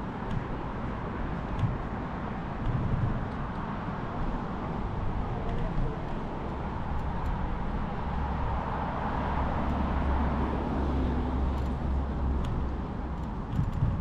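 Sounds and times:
wind rumbling on microphone: 0.0 - 14.0.

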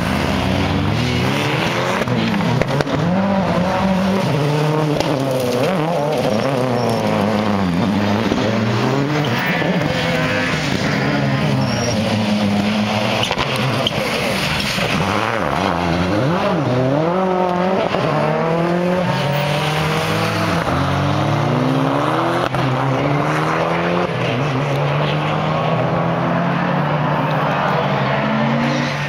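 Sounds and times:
rally car engines revving: 0.0 - 29.0
faint tyre squeal: 6.2 - 7.3, 11.4 - 12.3.

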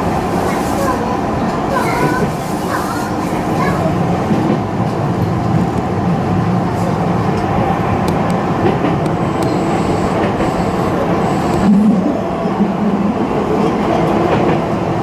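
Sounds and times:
train wheels rumbling: 0.0 - 15.0.

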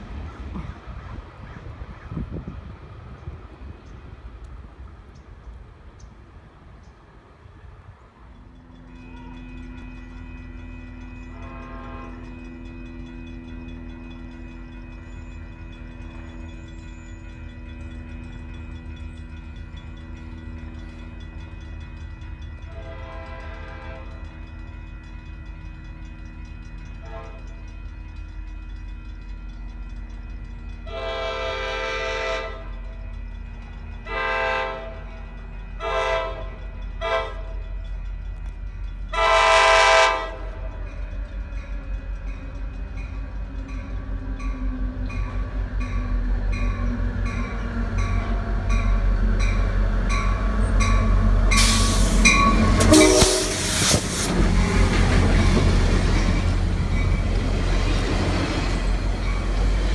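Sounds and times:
locomotive rushing past: 0.0 - 59.9
train rumble: 0.0 - 59.9
locomotive horn blasts: 8.6 - 13.2, 22.7 - 24.3, 27.0 - 27.7, 30.8 - 32.8, 34.0 - 35.2, 35.8 - 37.6, 39.1 - 40.7, 50.1 - 54.1.

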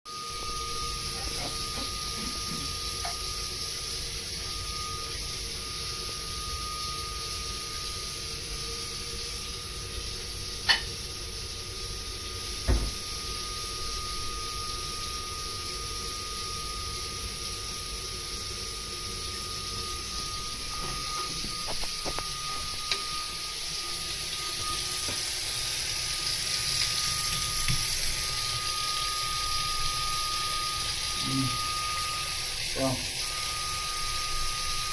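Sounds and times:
boiler high-pitched whistle: 0.1 - 34.9
steady hiss: 0.2 - 34.9
low thump: 12.7 - 13.0.

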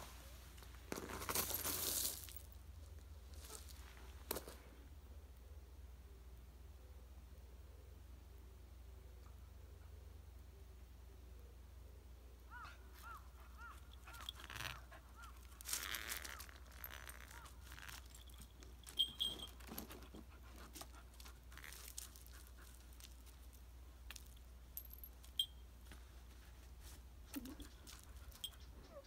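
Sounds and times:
dog paws crunching on gravel: 0.7 - 2.6, 13.0 - 24.4
collar tags jingling: 1.3 - 2.5, 13.0 - 25.9, 27.3 - 29.0
faint high chirps: 17.9 - 19.6.

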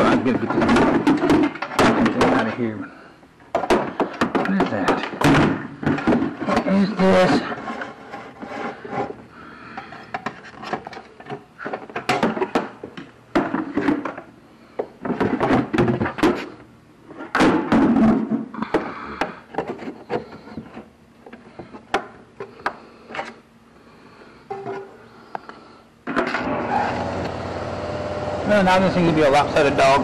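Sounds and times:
knocks and clunks of parts: 0.0 - 2.6, 3.4 - 16.5, 17.1 - 23.4, 24.5 - 26.5
scraping and rubbing: 6.2 - 12.5.

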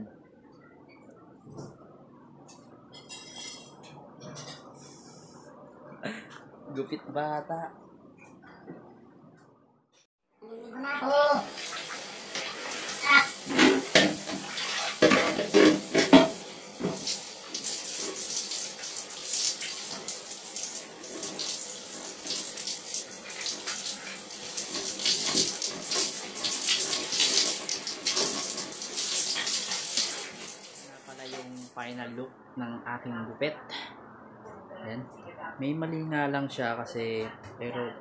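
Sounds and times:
water splashing and running: 11.4 - 31.7.

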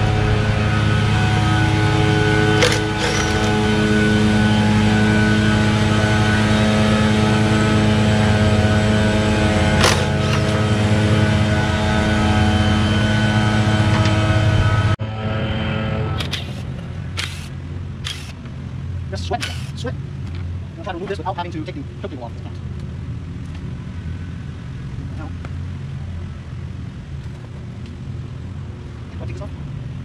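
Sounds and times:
small engine running: 0.0 - 19.9
sharp clicks: 16.2 - 18.5, 19.3 - 19.8.

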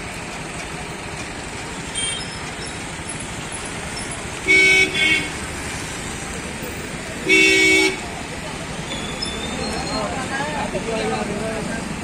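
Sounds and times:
road traffic rumble: 0.0 - 12.0
vehicle horn tooting: 4.4 - 5.4, 7.2 - 8.0.

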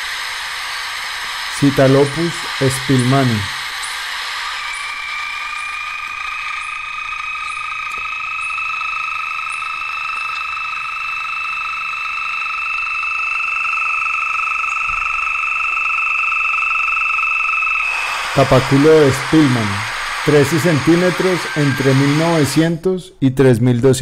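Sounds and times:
bird trilling song: 2.9 - 10.9
faint high ticks: 6.0 - 12.8.

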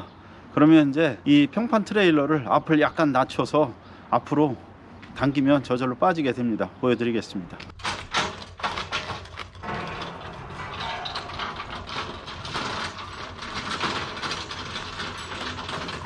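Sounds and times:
trailer clicks: 7.7 - 16.0
trailer rattling as it rolls: 7.8 - 16.0.

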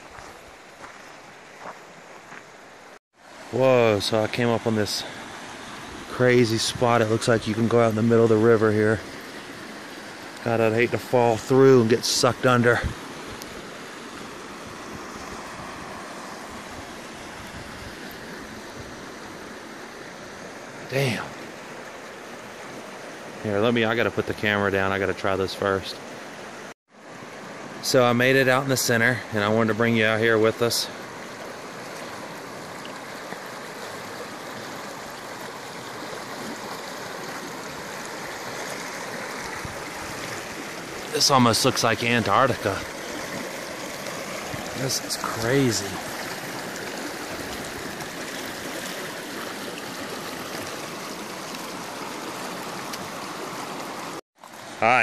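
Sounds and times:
river water rushing: 0.0 - 55.0
river rapids rushing over boulders: 31.0 - 55.0.

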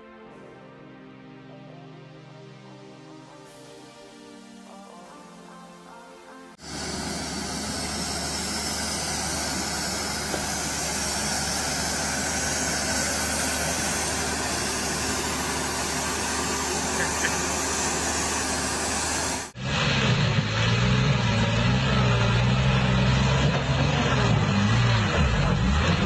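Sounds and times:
loud even hiss: 3.2 - 20.3
deep truck engine: 6.6 - 26.0
diesel truck engine humming: 6.6 - 26.0.

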